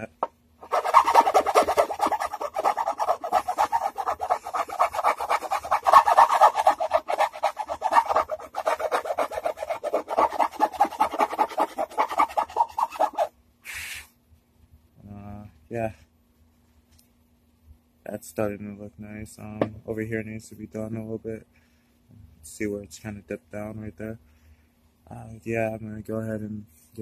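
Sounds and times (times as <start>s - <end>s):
hand file rasping on wood: 0.2s - 13.3s.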